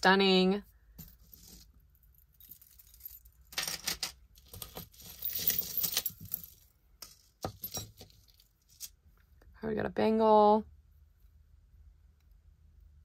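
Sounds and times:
metal jewelry clinking: 1.0 - 9.0.

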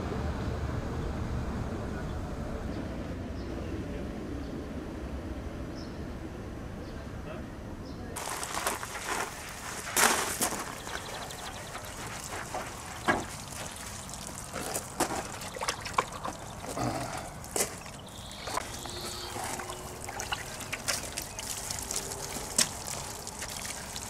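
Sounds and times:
sponge washing car: 8.2 - 24.0
water drips: 8.2 - 24.0
water trickling and splashing: 8.2 - 24.0.

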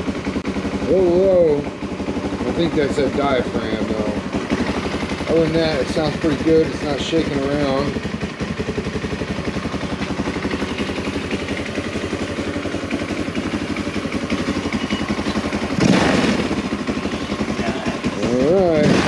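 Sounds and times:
atv engine idling: 0.0 - 19.0.

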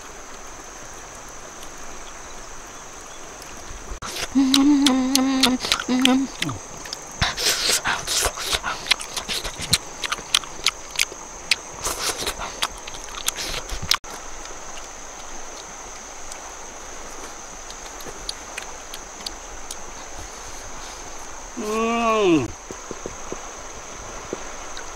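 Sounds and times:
outdoor hiss: 0.0 - 24.9
chewing and lip-smacking: 4.0 - 16.4, 17.2 - 20.7.

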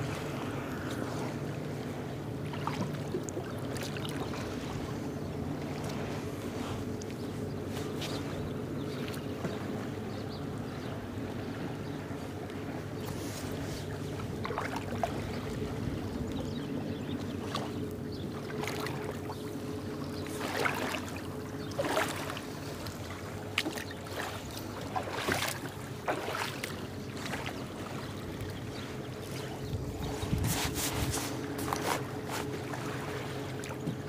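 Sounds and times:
steady low hum: 0.0 - 34.0
water lapping against boat hull: 0.0 - 34.0
sharp splashes: 23.6 - 26.8.

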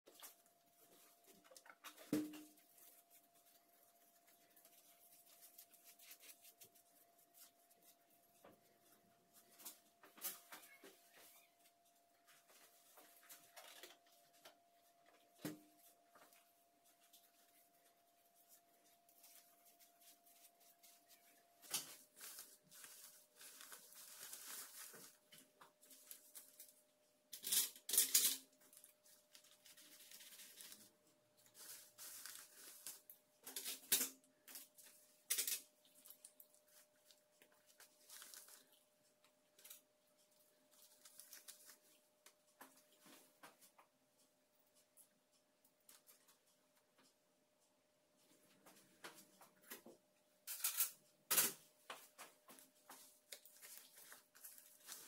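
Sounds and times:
paper drape rustling: 0.1 - 11.6, 16.2 - 26.7, 28.8 - 33.9.

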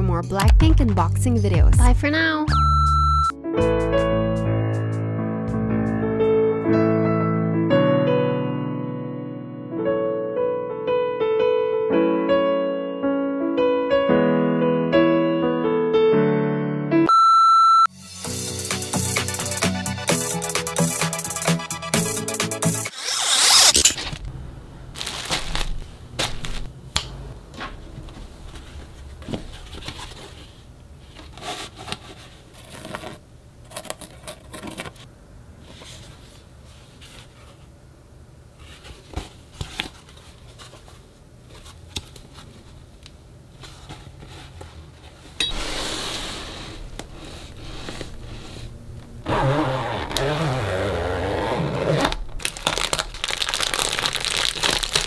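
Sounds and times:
plastic crinkling: 24.9 - 26.7, 51.8 - 55.0.

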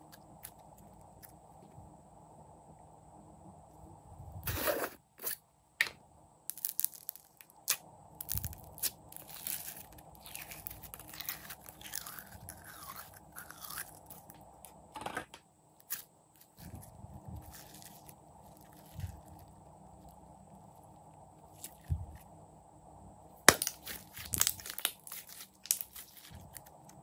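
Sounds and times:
slime squishing: 6.5 - 14.4, 23.5 - 27.0.

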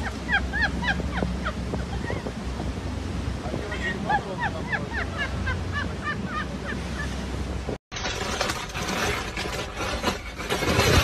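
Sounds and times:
wind on microphone: 0.0 - 7.8.

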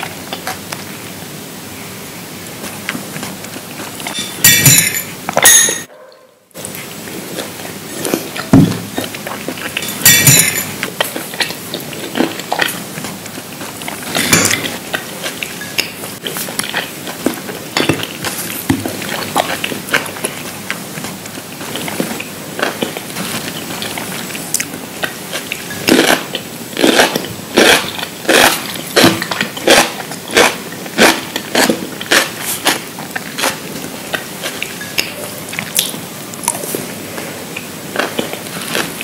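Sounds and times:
utensils clinking on dishes: 4.0 - 5.9, 8.4 - 11.3, 14.1 - 14.8
crunchy chewing: 6.6 - 39.0.

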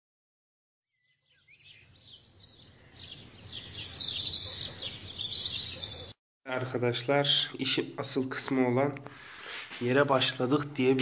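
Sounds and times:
birds chirping: 0.9 - 7.5.

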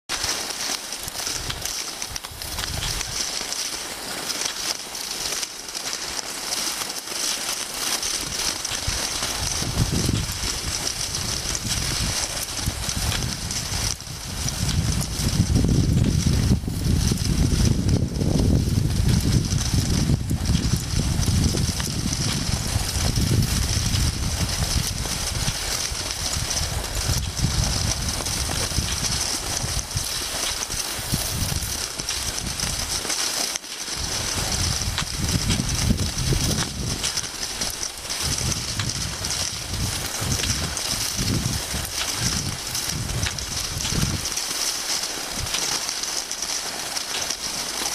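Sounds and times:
skis sliding over packed snow: 0.1 - 47.9
wind buffeting microphone: 1.4 - 3.2, 8.2 - 33.0, 34.0 - 44.4.

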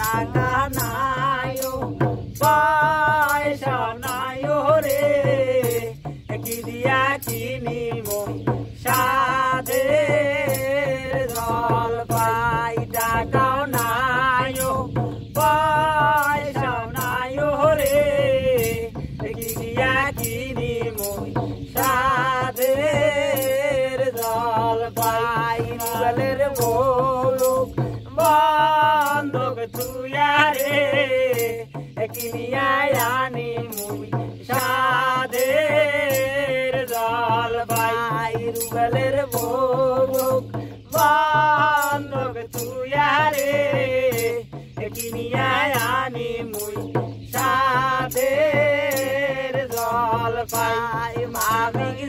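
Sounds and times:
barrel drum beat: 0.0 - 52.0
man singing folk song: 0.0 - 52.0.

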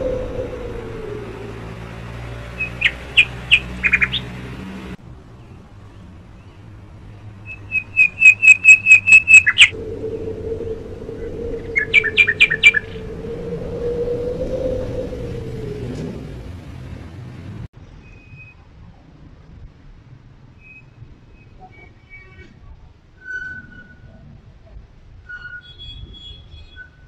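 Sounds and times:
bird chirping: 0.0 - 4.6, 5.4 - 15.8
steady low hum: 9.6 - 17.0.

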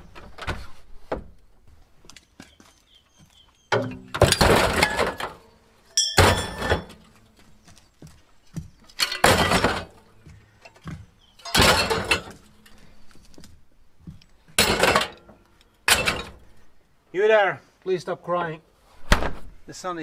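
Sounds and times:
metal tubes crashing into bin: 3.8 - 5.4, 6.0 - 7.1, 9.0 - 10.0, 11.4 - 12.4, 14.6 - 15.3
light clinks of metal: 5.9 - 6.8.

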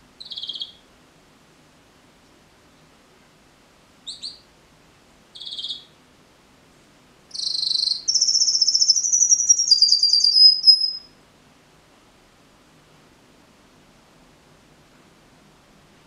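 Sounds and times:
canary singing: 0.2 - 0.8, 4.0 - 4.4, 5.4 - 5.9, 7.3 - 11.1.

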